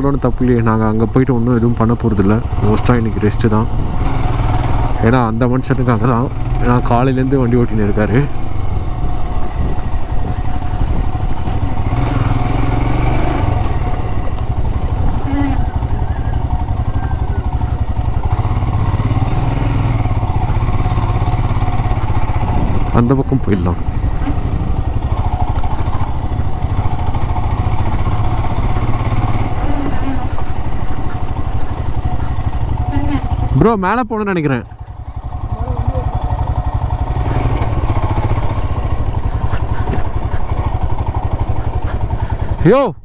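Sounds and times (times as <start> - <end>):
motorcycle engine running: 0.0 - 43.0
rush of wind noise: 8.7 - 12.2, 22.2 - 23.0.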